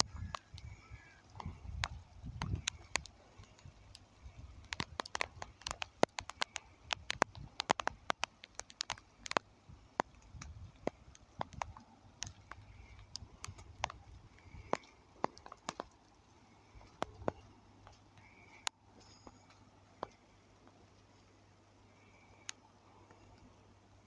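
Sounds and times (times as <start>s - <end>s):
faint low rumble: 0.0s - 8.4s
sharp clicks and ticks: 0.0s - 21.2s, 21.9s - 23.5s.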